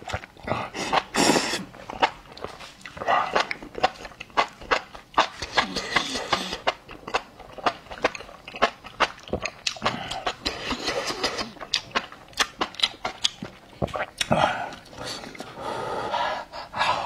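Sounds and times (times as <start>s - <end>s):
wet chewing with lip smacks: 1.8s - 15.0s.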